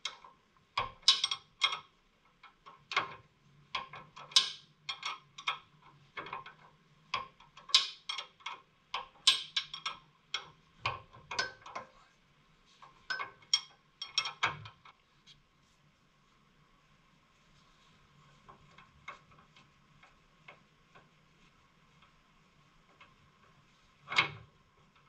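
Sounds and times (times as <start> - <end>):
hand wrench clicking and clinking: 0.9 - 1.9, 4.2 - 5.6, 13.1 - 14.5.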